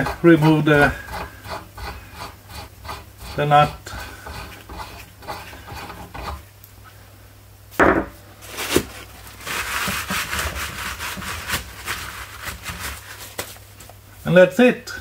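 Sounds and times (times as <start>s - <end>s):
metal threads scraping and clicking: 0.0s - 6.4s
loud knock: 7.8s - 8.2s.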